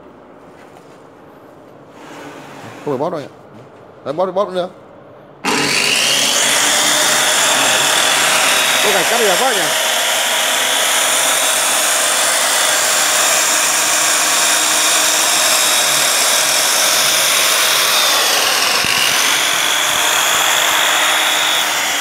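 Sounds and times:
tile saw whining: 5.4s - 22.0s.

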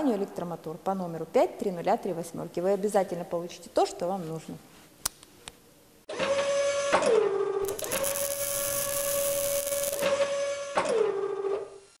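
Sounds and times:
motor whine: 7.6s - 10.7s
loud grinding hiss: 7.7s - 10.2s.

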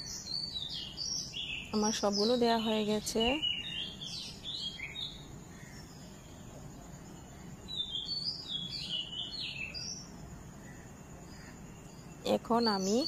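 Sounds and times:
bird chirping: 0.0s - 13.0s.

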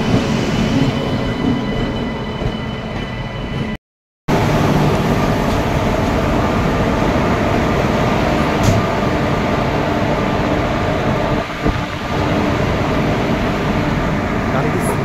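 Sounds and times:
locomotive machinery whirring: 4.3s - 15.0s.

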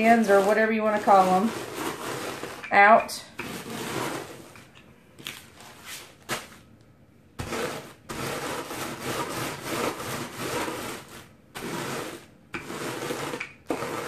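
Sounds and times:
rolling pin crushing chips in bag: 7.4s - 14.0s.

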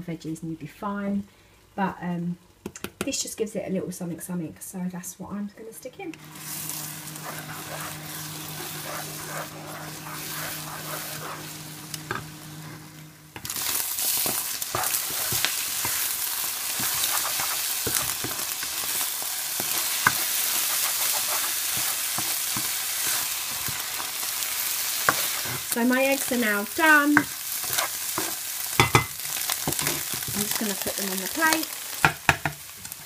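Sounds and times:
eggs sizzling in oil: 6.1s - 33.0s
low hum: 6.2s - 13.5s
spatula scraping and tapping pan: 6.2s - 24.2s, 25.0s - 30.7s, 31.9s - 32.6s.

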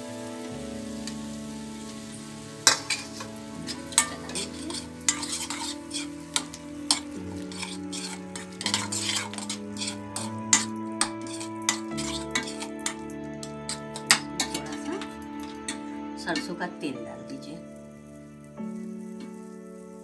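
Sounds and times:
light sizzle: 0.0s - 20.0s
metal spoon scraping a pan: 1.0s - 16.6s
spoon clinking against pan: 2.6s - 13.1s.

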